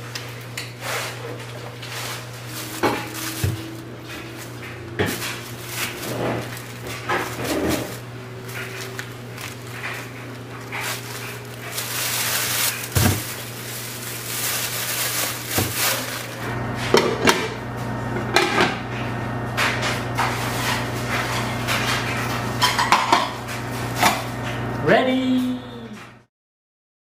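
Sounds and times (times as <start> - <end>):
plastic bags rustling: 0.0 - 16.5
steady low hum: 0.0 - 26.0.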